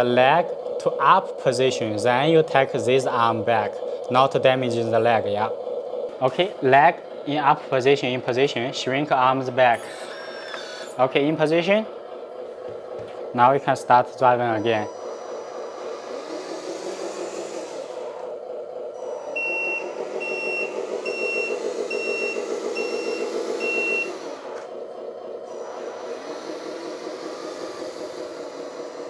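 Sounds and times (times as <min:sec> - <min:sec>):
toy truck driving: 0:00.0 - 0:29.0
reversing beeper beeps: 0:19.0 - 0:24.2.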